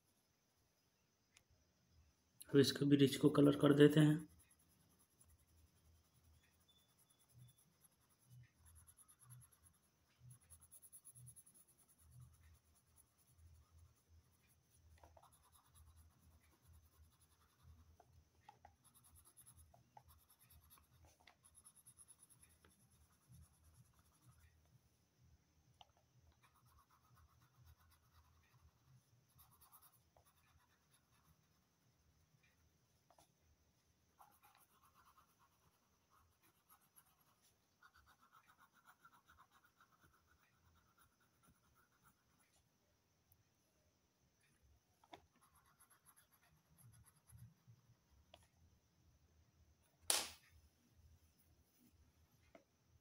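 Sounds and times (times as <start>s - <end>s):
pencil scratching on paper: 3.0s - 24.6s, 26.3s - 31.8s, 34.2s - 42.6s, 45.1s - 47.8s.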